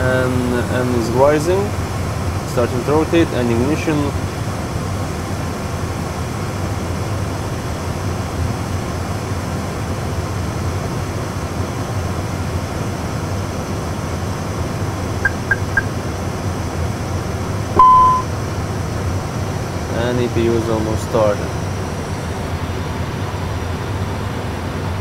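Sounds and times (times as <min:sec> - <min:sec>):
steady low hum: 0:15.0 - 0:16.5
short beeps: 0:15.2 - 0:15.9, 0:17.8 - 0:18.3.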